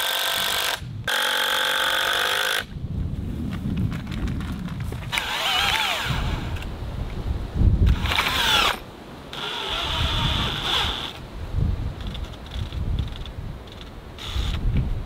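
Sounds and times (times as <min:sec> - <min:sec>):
power drill whining: 0:05.1 - 0:06.6, 0:07.9 - 0:11.2, 0:13.7 - 0:14.6.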